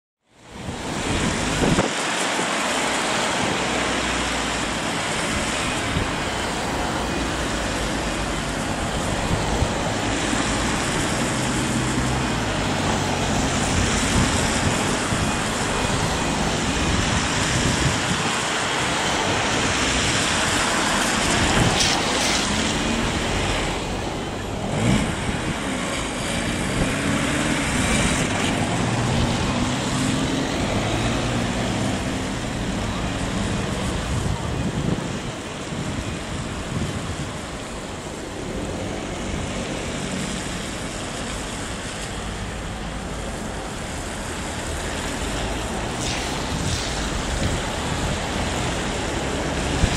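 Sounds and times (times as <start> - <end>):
road traffic noise: 0.2 - 49.9
wind rushing: 0.6 - 40.5, 44.9 - 49.9.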